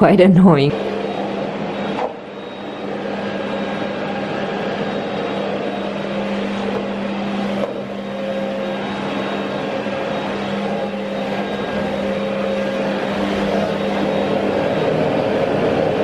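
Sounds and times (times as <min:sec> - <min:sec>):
vacuum cleaner running: 0:00.0 - 0:16.0.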